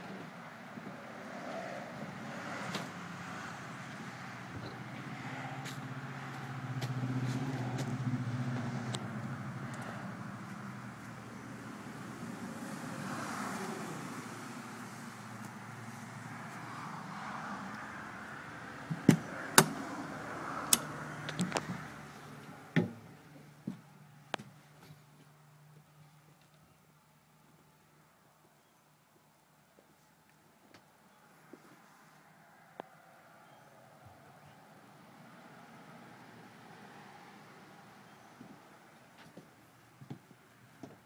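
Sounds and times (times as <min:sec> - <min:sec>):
vehicle engine idling: 0:03.6 - 0:12.9.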